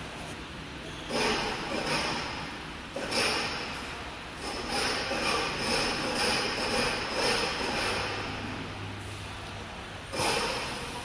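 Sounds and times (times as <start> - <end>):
machine positioning drives running: 1.1 - 8.9, 10.0 - 11.0.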